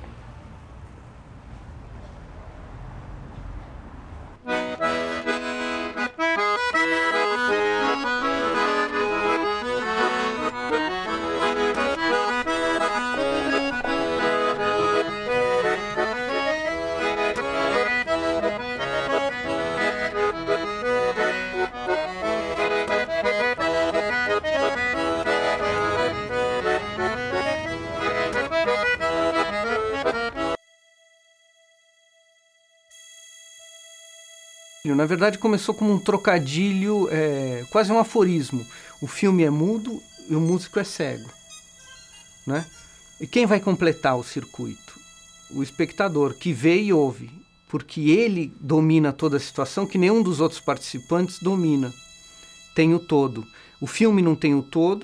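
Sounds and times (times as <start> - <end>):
low street rumble: 0.0 - 6.0, 6.8 - 30.6
accordion tune: 4.4 - 55.0.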